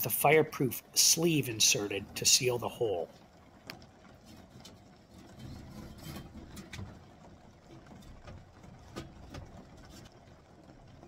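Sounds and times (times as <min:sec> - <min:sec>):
metal stovepipe clicking and rubbing: 0:04.1 - 0:07.0.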